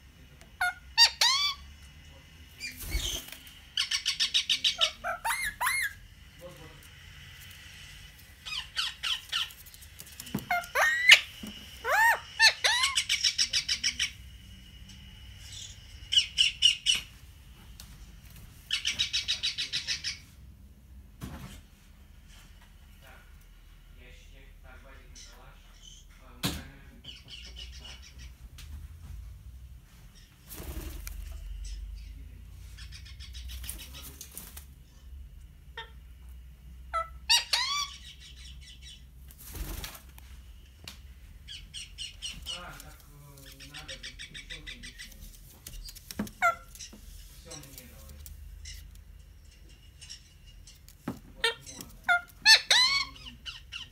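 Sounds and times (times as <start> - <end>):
parrot rapid chattering: 0.6 - 1.6, 3.8 - 6.0, 8.4 - 9.8, 10.5 - 14.2, 41.5 - 47.7, 51.4 - 53.9
parakeet sharp calls: 0.6 - 1.7, 2.6 - 6.0, 8.4 - 9.6, 10.5 - 14.2
parrot squawks: 0.6 - 1.7, 3.8 - 6.0, 10.5 - 14.2, 36.9 - 39.0, 46.4 - 46.8, 51.4 - 53.9.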